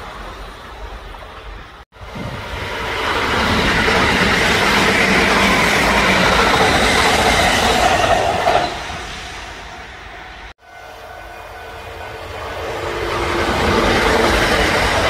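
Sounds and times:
rush of passing train cars: 0.0 - 15.0.

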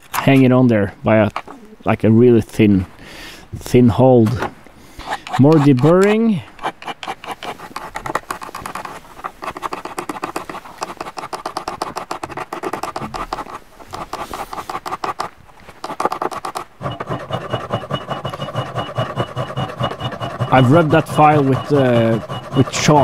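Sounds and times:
file scraping metal: 5.0 - 23.0.

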